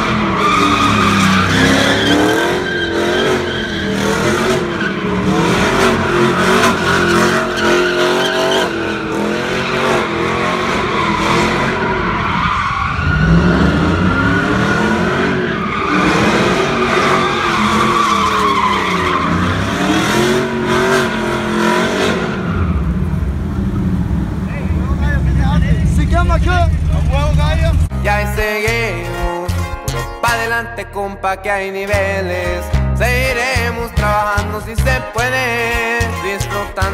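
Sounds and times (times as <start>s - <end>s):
pickup engine revving: 0.0s - 27.9s
tires squealing on asphalt: 0.0s - 27.9s.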